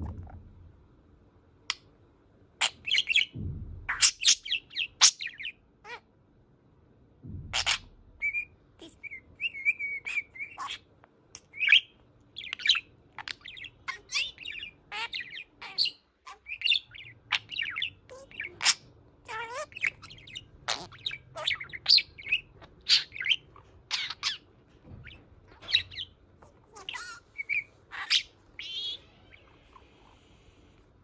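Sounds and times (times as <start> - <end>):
budgerigar chattering: 7.6 - 24.4, 25.0 - 29.9.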